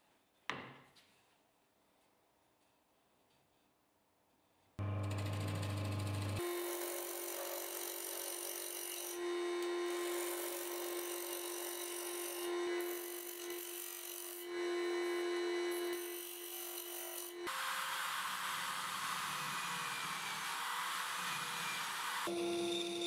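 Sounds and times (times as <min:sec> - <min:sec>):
drill press running: 0:04.8 - 0:11.6
lathe motor hum: 0:04.8 - 0:13.1.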